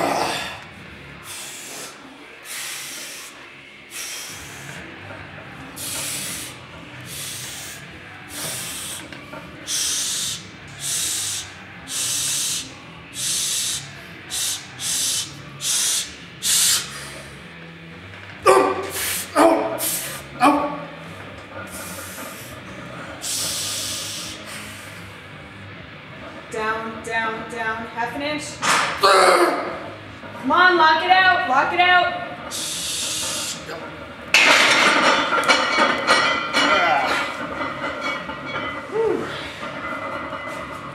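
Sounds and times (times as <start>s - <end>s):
person hissing breaths through teeth: 1.2s - 4.8s, 5.8s - 12.6s, 13.2s - 17.3s, 18.9s - 20.3s, 23.2s - 25.1s, 32.5s - 33.7s.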